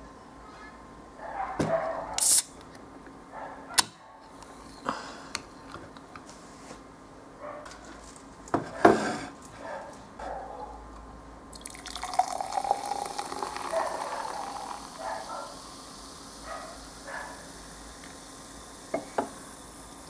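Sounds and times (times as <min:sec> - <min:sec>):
can opening hiss: 0:02.2 - 0:02.6.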